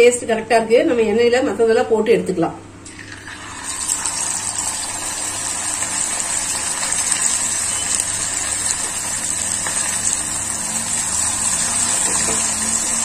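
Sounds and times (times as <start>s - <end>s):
fish sizzling in hot oil: 2.9s - 13.0s.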